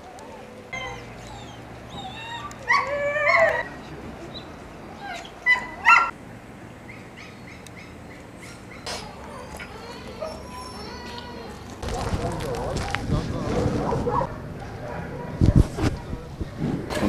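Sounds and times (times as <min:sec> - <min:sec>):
dog whining: 0:00.2 - 0:03.8, 0:08.4 - 0:11.8
dog barks: 0:05.5 - 0:06.1, 0:11.8 - 0:16.2.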